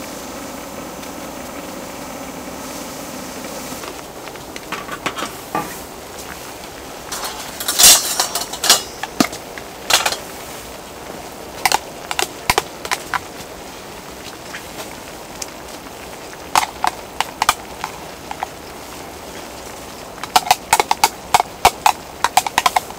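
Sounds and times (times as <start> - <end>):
stew bubbling with pops: 0.0 - 22.9
metal pot lid clattering: 4.7 - 5.8, 7.1 - 10.3.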